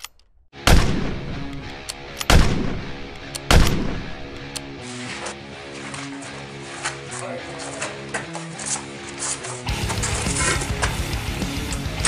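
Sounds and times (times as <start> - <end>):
shotgun blasts with echo: 0.6 - 1.5, 2.3 - 4.2
background music: 0.6 - 12.0.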